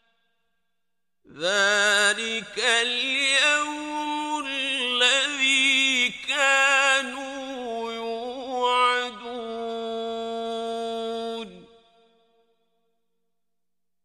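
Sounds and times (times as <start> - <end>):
man chanting: 1.3 - 12.0.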